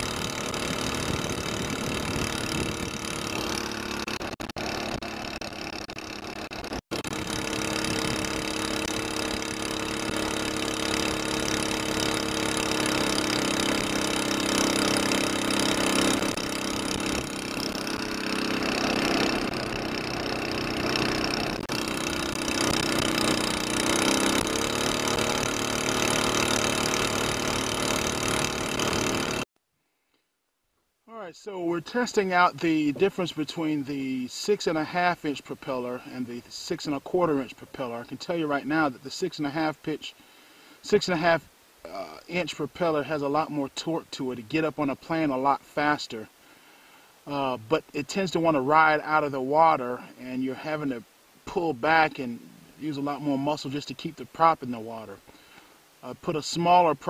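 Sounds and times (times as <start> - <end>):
small boat engine running: 0.0 - 29.5, 31.4 - 38.9, 51.7 - 55.7.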